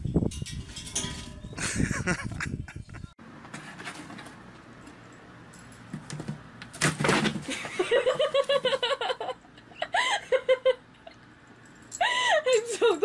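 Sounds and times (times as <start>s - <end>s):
person giggling: 1.6s - 3.1s, 7.5s - 11.1s, 12.0s - 13.0s.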